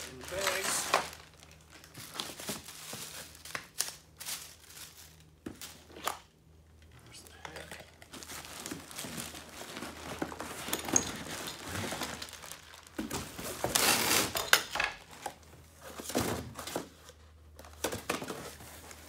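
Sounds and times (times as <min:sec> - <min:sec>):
cardboard rustling: 0:00.0 - 0:06.0, 0:08.1 - 0:14.4
plastic wrapping crinkling: 0:00.0 - 0:06.2, 0:07.6 - 0:15.4.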